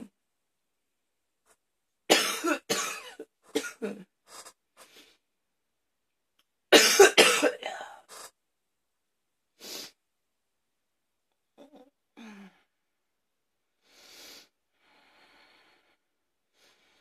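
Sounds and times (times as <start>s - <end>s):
woman coughing hard: 2.1s - 4.1s, 6.7s - 8.0s.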